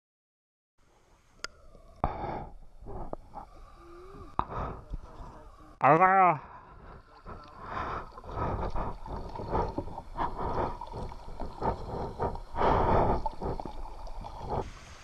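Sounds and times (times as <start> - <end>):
kayak paddle strokes in water: 7.0 - 15.0.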